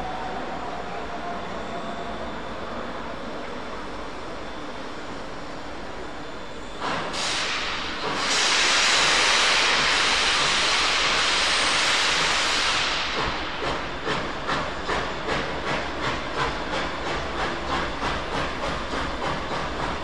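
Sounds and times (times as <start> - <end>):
loud hiss of steam: 6.8 - 20.0
steam locomotive exhaust chuffs: 6.8 - 20.0.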